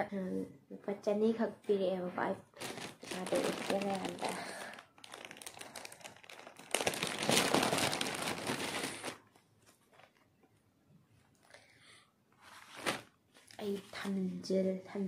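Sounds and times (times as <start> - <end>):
wallet crinkling and rustling: 2.5 - 10.5, 12.4 - 13.9.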